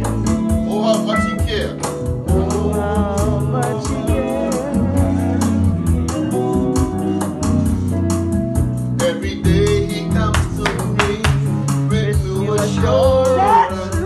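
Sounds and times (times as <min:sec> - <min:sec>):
bass: 0:00.0 - 0:14.0
electric guitar melody: 0:00.0 - 0:14.0
drum beat: 0:09.4 - 0:14.0.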